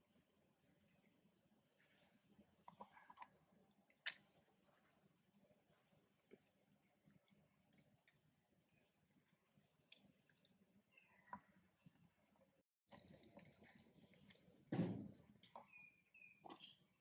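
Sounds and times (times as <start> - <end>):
faint high ticks and clicks: 7.7 - 10.6.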